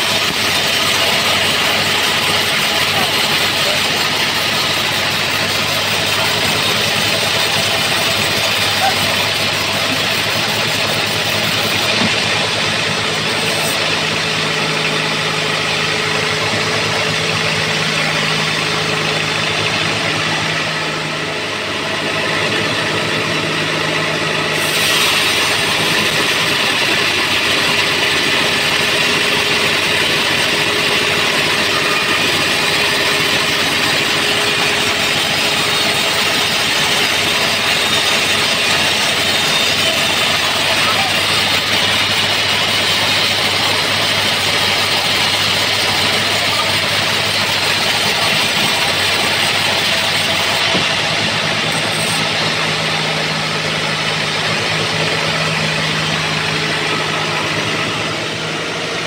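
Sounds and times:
sawmill machine drone: 0:00.0 - 0:59.0
saw blade hissing in wood: 0:24.5 - 0:28.7.

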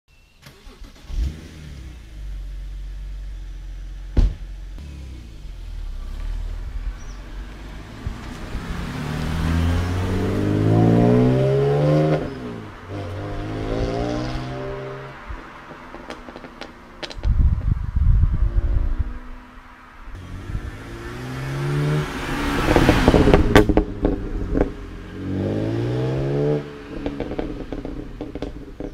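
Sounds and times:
car engine revving and idling: 0:00.6 - 0:17.2, 0:18.3 - 0:28.9
car door thump: 0:04.1 - 0:04.5
car accelerating past: 0:04.8 - 0:17.0, 0:18.4 - 0:28.9.

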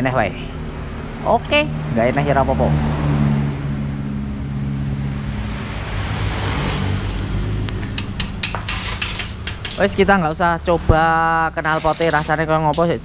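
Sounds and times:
sharp metallic clicks: 0:07.6 - 0:10.0.

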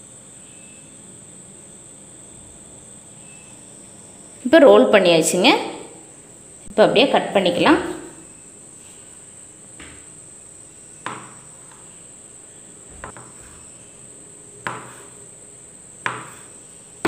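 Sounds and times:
knife chopping on wooden board: 0:14.6 - 0:15.1, 0:16.0 - 0:16.5.

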